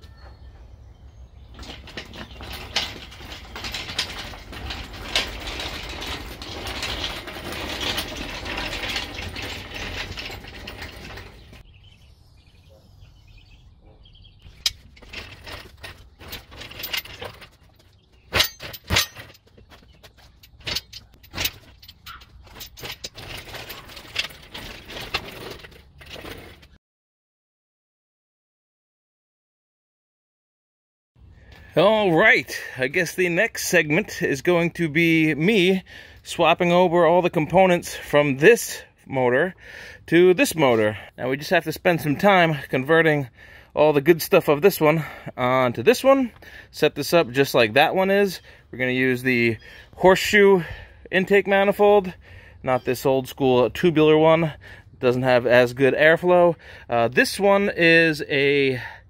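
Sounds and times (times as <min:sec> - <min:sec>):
metal clanks and clicks: 0:01.4 - 0:11.6, 0:14.5 - 0:26.8.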